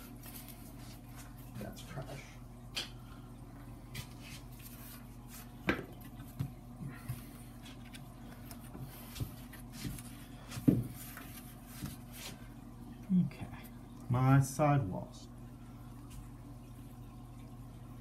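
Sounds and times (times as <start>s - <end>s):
light taps and rubs: 4.0s - 12.4s.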